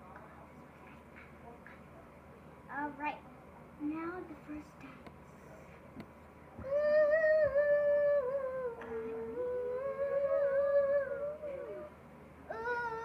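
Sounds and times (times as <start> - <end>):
girl humming: 6.6 - 11.9, 12.5 - 13.0.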